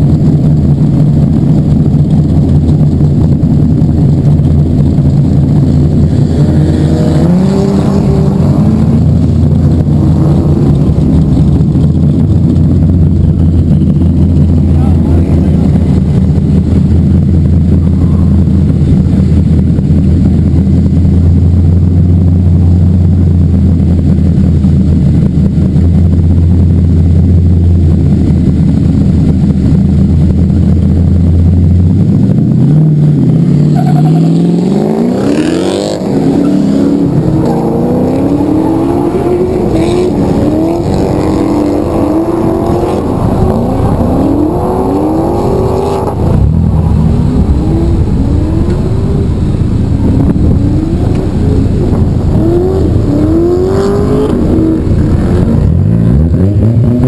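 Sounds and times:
car engine idling: 0.0s - 56.5s
car engine revving: 0.0s - 57.0s.

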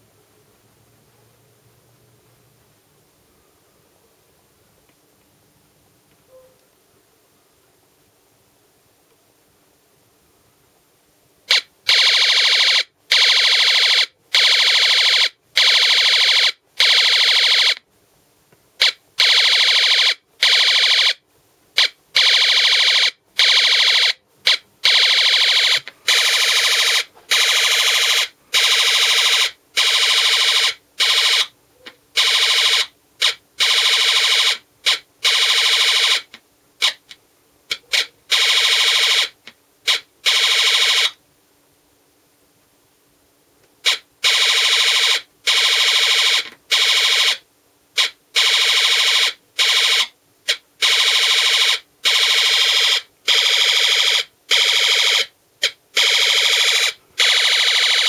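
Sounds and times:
electronic machine-gun bursts: 11.5s - 17.8s, 18.8s - 21.2s, 21.8s - 31.5s, 32.2s - 37.0s, 37.7s - 41.2s, 43.8s - 47.4s, 48.0s - 58.0s.

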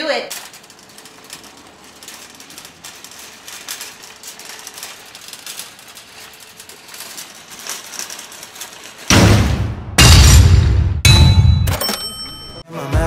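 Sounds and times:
shopping cart rattling on concrete: 0.0s - 9.1s.

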